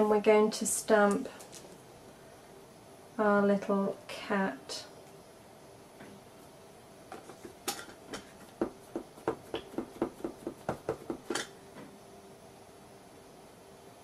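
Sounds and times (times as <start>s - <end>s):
ink pad tapping on stamp: 8.6s - 11.4s.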